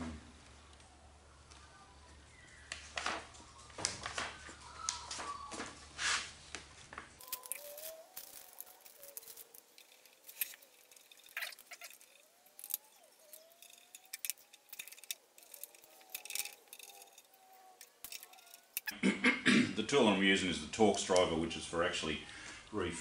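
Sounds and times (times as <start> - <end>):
small metal parts clicking: 7.2 - 18.9.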